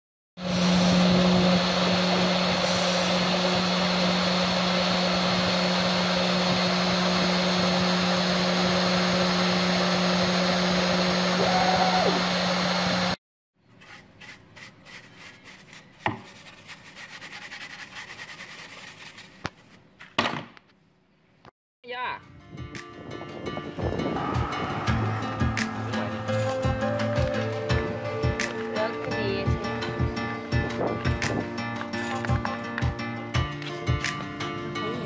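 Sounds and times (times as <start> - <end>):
paintbrush brushing dust: 0.4 - 3.6, 13.7 - 19.9
spindle humming and whining: 0.4 - 13.2, 23.9 - 30.0.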